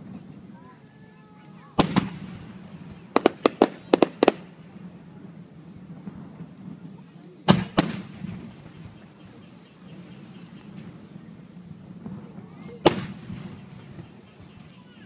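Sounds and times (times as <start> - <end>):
firework shells bursting: 1.7 - 4.9, 6.1 - 9.0, 11.9 - 14.7.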